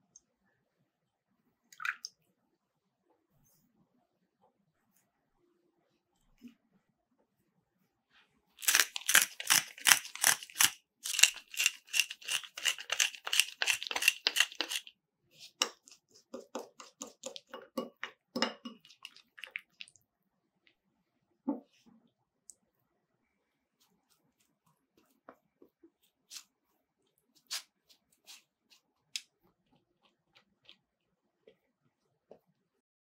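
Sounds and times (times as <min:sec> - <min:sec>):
metal spoon stirring in glass bowl: 0:08.6 - 0:14.9, 0:15.5 - 0:19.7
pepper grinder crunching: 0:08.6 - 0:14.9.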